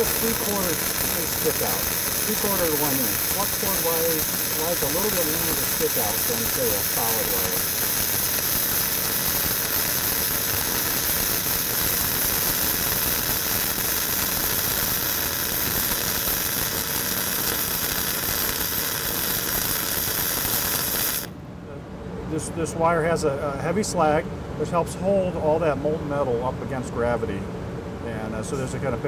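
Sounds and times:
welding arc hissing and crackling: 0.0s - 21.4s.

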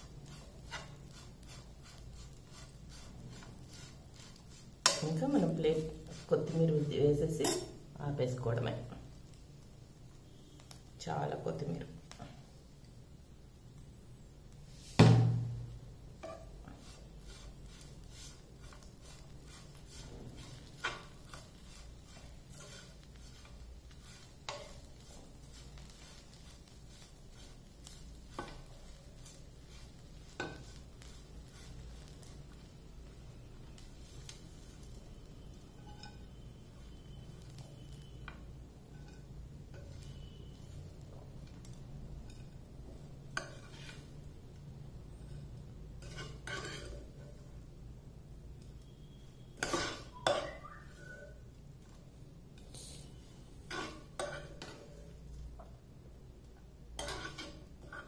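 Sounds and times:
spoon stirring and scraping pan: 0.0s - 13.8s, 14.6s - 58.0s
spoon clanking against pan: 7.4s - 7.8s, 35.8s - 36.3s, 49.6s - 51.3s.

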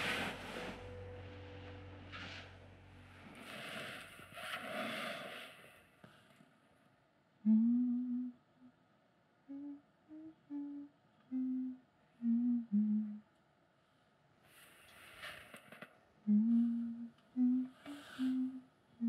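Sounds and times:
person humming: 7.4s - 8.4s, 9.5s - 13.2s, 16.3s - 18.7s.

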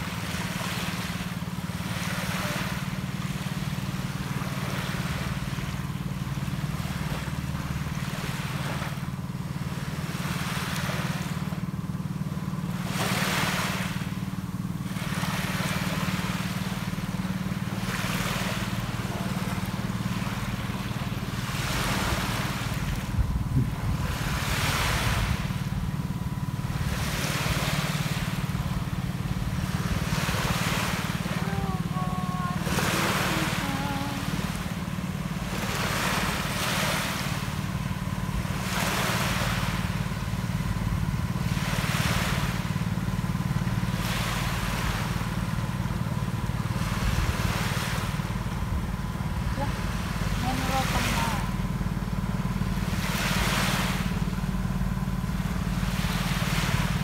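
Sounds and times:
sea waves washing onto beach: 0.0s - 57.0s
low rumble: 12.5s - 57.0s.

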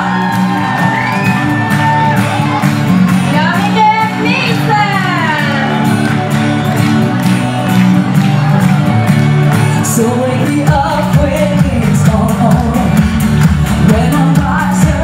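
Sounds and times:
backing track with steady beat: 0.0s - 15.0s
heavy bass line: 0.0s - 15.0s
woman singing pop song: 3.3s - 5.8s, 9.8s - 15.0s.

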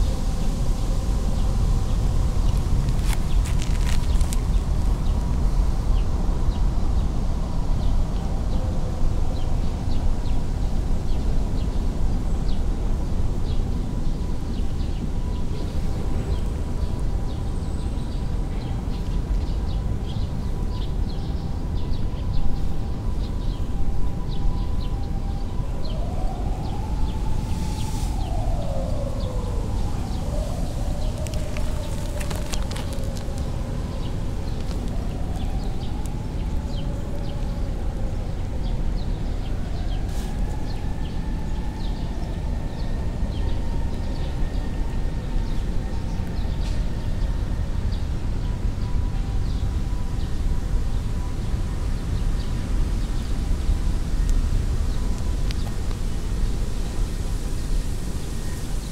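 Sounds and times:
steady low rumble: 0.0s - 8.4s, 26.0s - 42.2s
small birds chirping: 28.2s - 37.5s.

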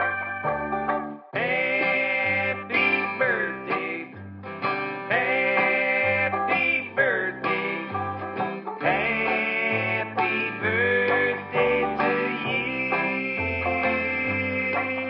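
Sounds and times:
bass line: 0.0s - 15.0s
guitar instrumental music: 0.0s - 15.0s.

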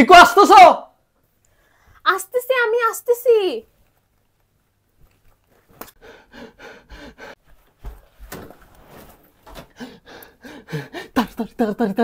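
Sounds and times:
woman panting: 6.0s - 7.4s, 9.7s - 11.4s.

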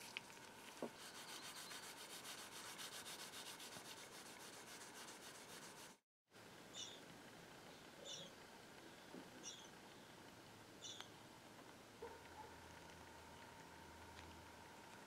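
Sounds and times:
paper towel rubbing on metal: 0.7s - 6.0s.

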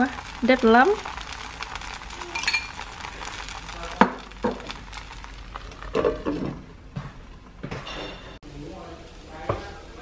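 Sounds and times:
batter sizzling in a skillet: 0.0s - 6.5s.

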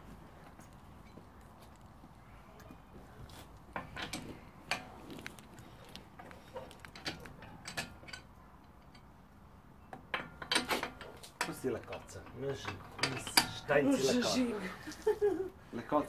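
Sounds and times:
metallic clicks of wheel bolts: 3.7s - 5.3s, 6.2s - 9.2s, 9.8s - 13.7s.

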